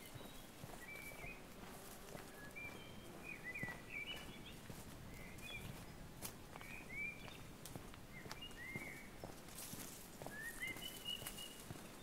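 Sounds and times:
footsteps on path: 0:00.0 - 0:12.0
songbirds chirping: 0:00.0 - 0:12.0.

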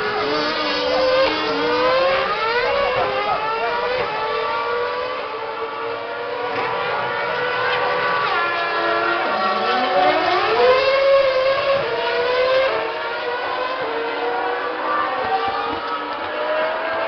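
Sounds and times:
racing car engines revving: 0:00.0 - 0:17.0.

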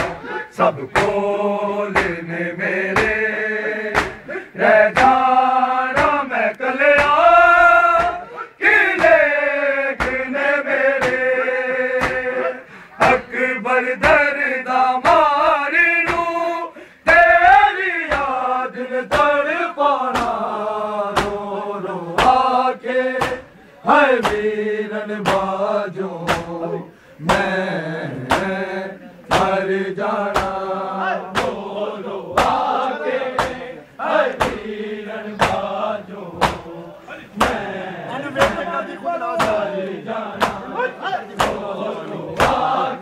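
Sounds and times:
men chanting in unison: 0:00.0 - 0:43.0
chest beating slaps: 0:00.9 - 0:01.3, 0:01.9 - 0:02.2, 0:03.0 - 0:03.2, 0:03.9 - 0:04.3, 0:04.9 - 0:05.2, 0:05.9 - 0:06.2, 0:07.0 - 0:07.2, 0:07.9 - 0:08.2, 0:09.0 - 0:09.2, 0:10.0 - 0:10.3, 0:11.0 - 0:11.3, 0:12.0 - 0:12.3, 0:16.0 - 0:16.3, 0:18.1 - 0:18.4, 0:19.1 - 0:19.4, 0:20.1 - 0:20.5, 0:21.1 - 0:21.4, 0:22.2 - 0:22.5, 0:23.2 - 0:23.5, 0:24.2 - 0:24.6, 0:25.2 - 0:25.6, 0:26.2 - 0:26.6, 0:27.2 - 0:27.6, 0:28.2 - 0:28.6, 0:29.3 - 0:29.6, 0:30.3 - 0:30.7, 0:31.3 - 0:31.7, 0:32.3 - 0:33.6, 0:34.3 - 0:34.7, 0:35.4 - 0:36.8, 0:37.4 - 0:37.7, 0:38.4 - 0:38.7, 0:39.4 - 0:40.7, 0:41.3 - 0:41.7, 0:42.4 - 0:42.8.

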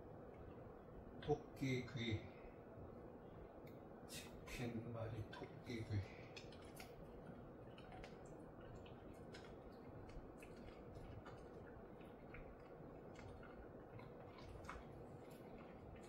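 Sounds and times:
low room hum: 0:00.0 - 0:16.0
dog chewing hard treat: 0:06.3 - 0:16.0.

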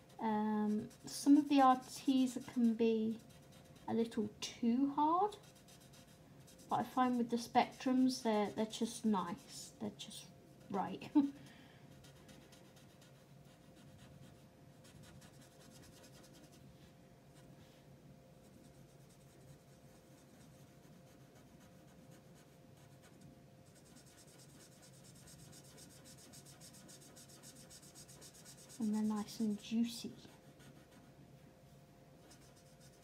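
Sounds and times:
marker scratching on paper: 0:12.0 - 0:16.6, 0:18.6 - 0:29.0, 0:32.2 - 0:33.0.

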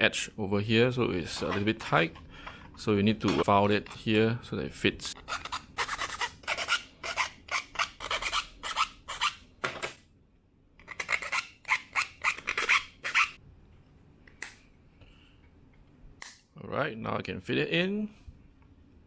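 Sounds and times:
hand file rasping on plastic: 0:05.2 - 0:09.4.

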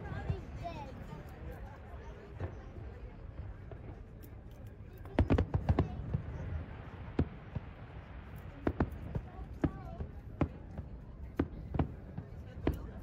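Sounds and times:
fireworks bangs: 0:05.0 - 0:13.0.

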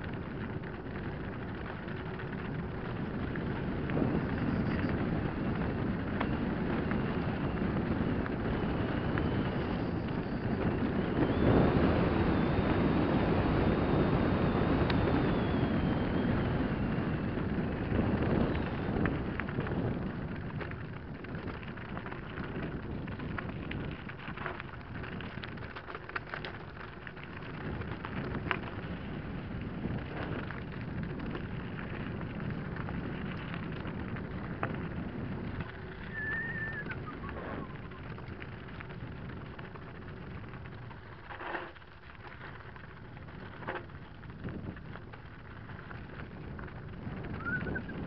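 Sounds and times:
small clicks and rattles: 0:00.0 - 0:12.6, 0:17.1 - 0:48.0
wind on microphone: 0:00.0 - 0:41.2, 0:42.8 - 0:48.0
bike tyres crunching on gravel: 0:00.0 - 0:48.0
high squeal: 0:35.7 - 0:38.0, 0:47.4 - 0:48.0.

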